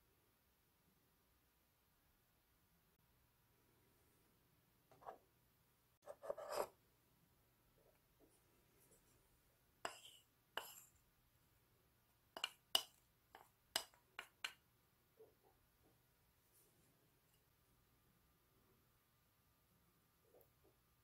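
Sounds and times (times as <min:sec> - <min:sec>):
wooden spoon tapping ceramic bowl: 0:12.4 - 0:14.6.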